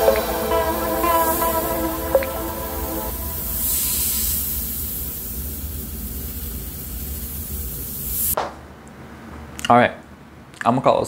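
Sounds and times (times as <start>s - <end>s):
airbrush spraying paint: 3.3s - 8.4s.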